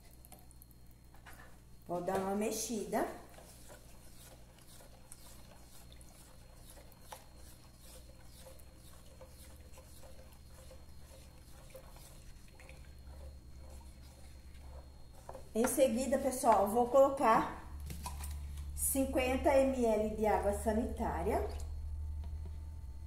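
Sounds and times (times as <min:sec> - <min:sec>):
spatula swishing and scraping: 0:02.7 - 0:17.3.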